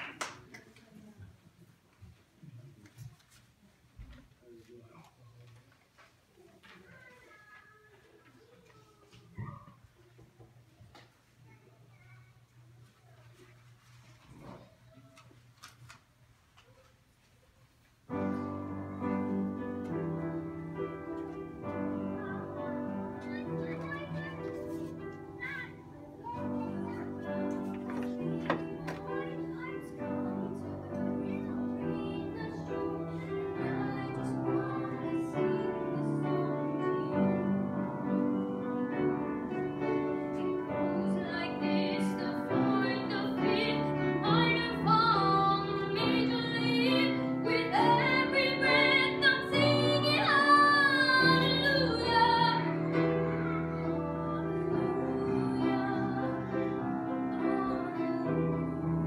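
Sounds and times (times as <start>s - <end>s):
woman singing a hymn: 30.2s - 37.9s, 40.8s - 53.2s, 54.0s - 59.0s.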